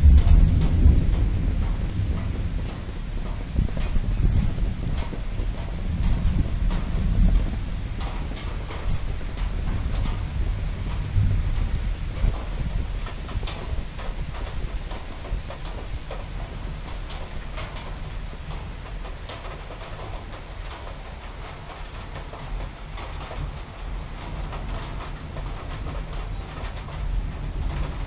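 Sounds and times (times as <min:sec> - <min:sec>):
low thunder rumble: 0:00.0 - 0:18.1
rain drops ticking: 0:00.0 - 0:28.0.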